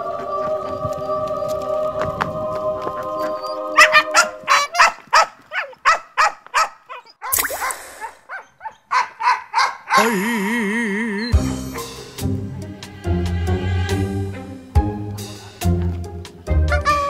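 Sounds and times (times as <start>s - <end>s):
background music: 0.0s - 4.7s, 11.1s - 17.0s.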